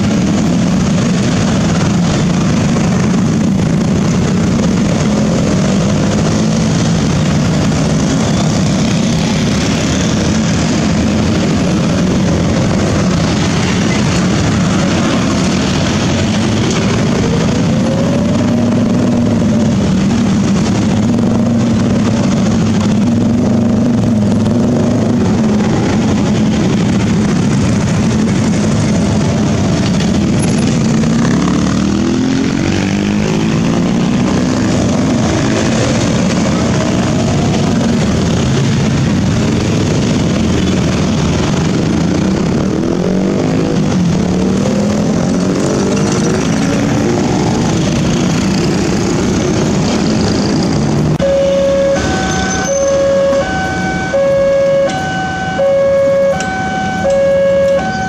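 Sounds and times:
motorbikes revving past: 0.0 - 58.0.

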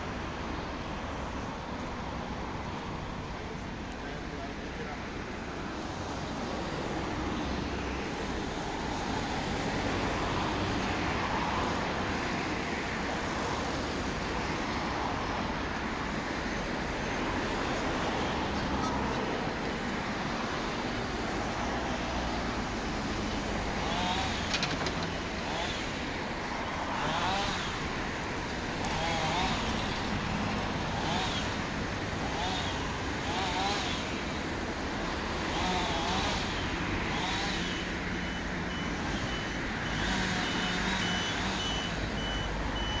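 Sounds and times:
road traffic: 0.0 - 43.0
excavator engine rumble: 22.4 - 26.8.

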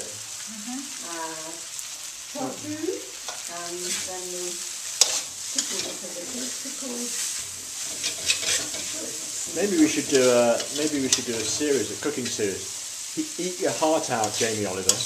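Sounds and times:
noodles sizzling in wok: 0.0 - 15.0
metal spatula scraping wok: 3.2 - 15.0.

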